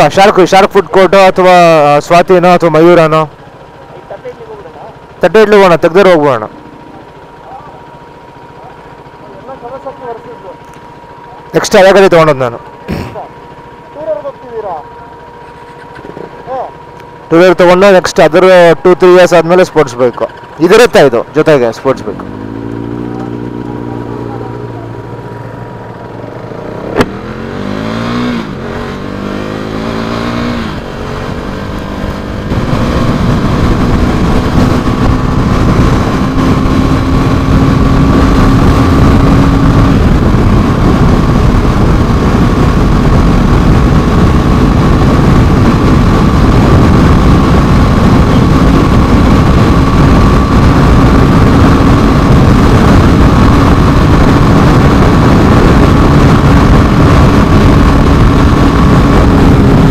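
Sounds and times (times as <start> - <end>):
motorcycle engine accelerating: 0.0 - 59.9
wind noise on microphone: 27.0 - 59.9.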